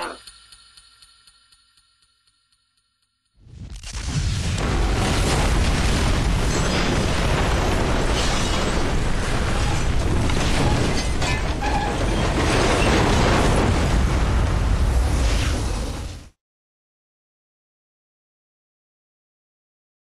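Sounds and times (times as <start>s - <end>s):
fire crackling and popping: 3.4s - 11.2s
explosion and fire rumble: 3.4s - 16.4s.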